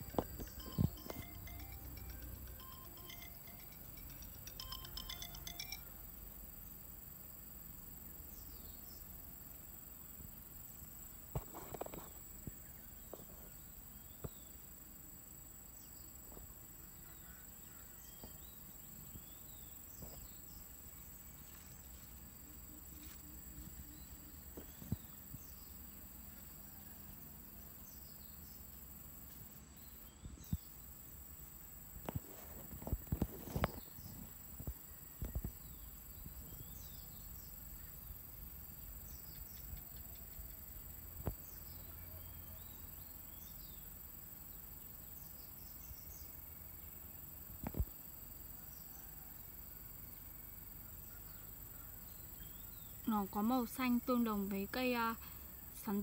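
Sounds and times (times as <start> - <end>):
ringing tones: 0.0 - 6.3
thin constant high tone: 0.0 - 6.8
steady low hiss: 0.0 - 56.0.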